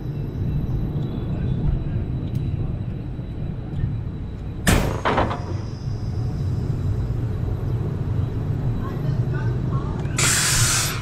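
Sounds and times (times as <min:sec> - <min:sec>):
roller coaster train rumbling: 0:00.0 - 0:11.0
sharp clunk and hiss: 0:10.2 - 0:11.0.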